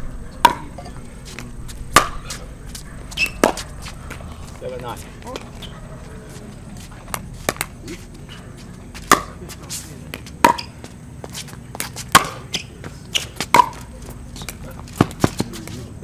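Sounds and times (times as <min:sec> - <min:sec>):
paddle hitting pickleball: 0:00.4 - 0:02.5, 0:03.1 - 0:04.6, 0:07.1 - 0:07.8, 0:09.0 - 0:09.5, 0:10.1 - 0:10.7, 0:11.8 - 0:15.8.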